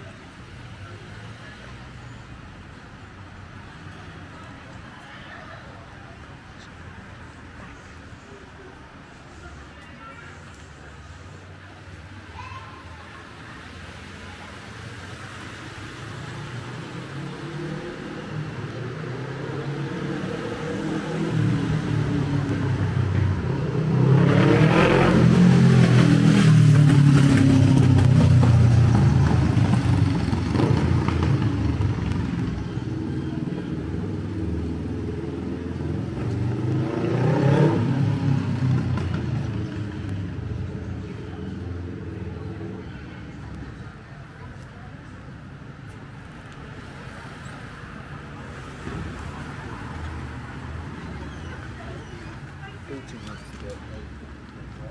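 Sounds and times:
motorcycle passing by: 16.5 - 42.6.

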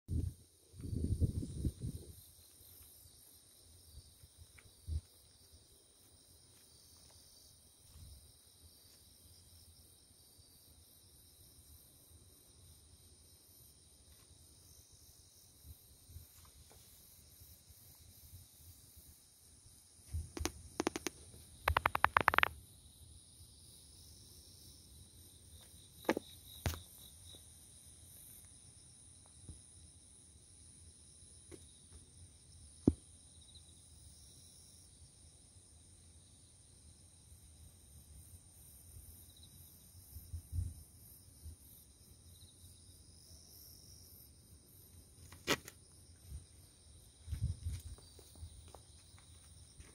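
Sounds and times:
crickets chirring: 0.1 - 49.9
knocks and thumps: 21.7 - 22.5.

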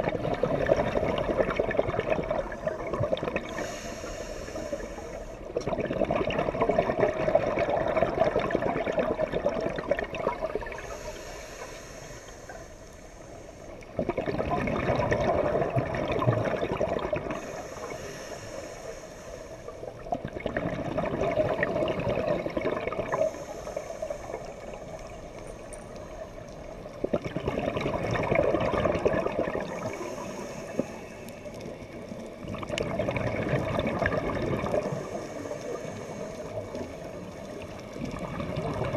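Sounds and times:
exhaled bubbles rushing: 0.0 - 3.7, 5.5 - 10.9, 13.9 - 17.5, 19.9 - 25.2, 26.8 - 30.9, 31.5 - 38.9
diver inhaling through regulator: 2.4 - 5.5, 10.7 - 14.0, 17.2 - 20.0, 23.0 - 25.3, 29.6 - 31.6, 34.7 - 37.2.

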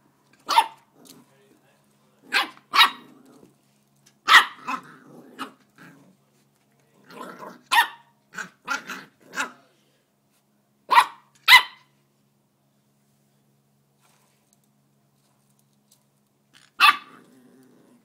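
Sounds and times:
puppy barking: 0.4 - 0.9, 2.3 - 3.1, 4.2 - 5.6, 7.6 - 9.6, 10.9 - 11.9, 16.8 - 17.2
puppy growling: 0.9 - 1.4, 2.2 - 3.6, 4.4 - 6.2, 7.0 - 7.7, 8.3 - 9.6, 16.5 - 18.0.

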